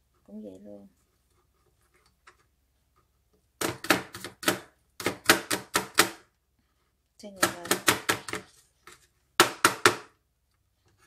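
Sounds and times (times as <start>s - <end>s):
knife chopping on cutting board: 3.6s - 6.2s, 7.4s - 8.5s.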